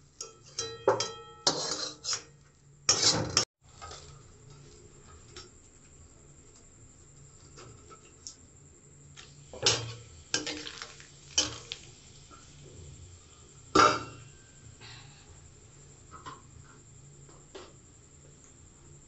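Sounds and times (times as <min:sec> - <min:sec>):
spatula scraping metal pan: 0:01.5 - 0:02.3.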